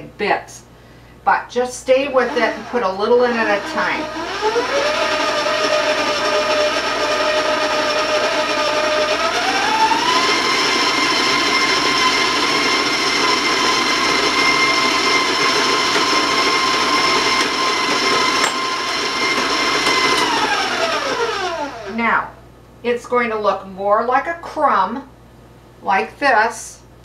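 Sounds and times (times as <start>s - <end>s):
stand mixer motor whining: 2.2s - 22.0s.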